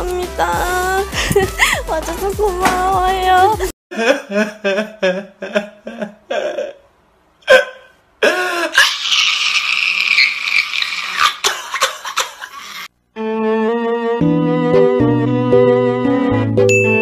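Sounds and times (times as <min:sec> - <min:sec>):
man sobbing and wailing: 0:03.9 - 0:09.8.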